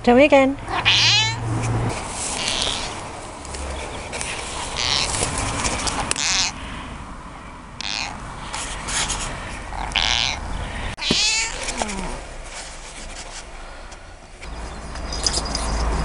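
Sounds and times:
cat meowing: 0.7 - 1.4, 2.4 - 3.0, 4.5 - 5.2, 5.8 - 6.6, 7.8 - 8.2, 9.7 - 10.4, 11.0 - 12.2.

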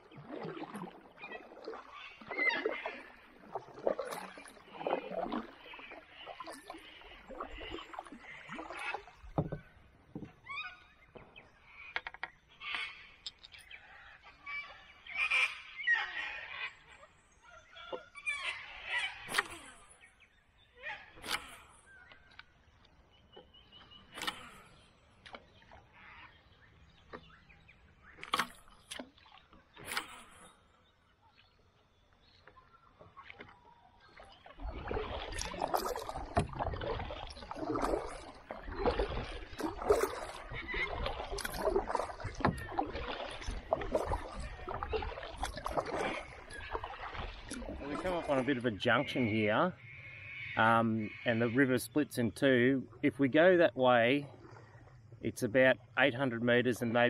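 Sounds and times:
water splashing and sloshing: 0.0 - 57.0
paddle knocking on hull: 9.2 - 10.4, 34.6 - 48.4.

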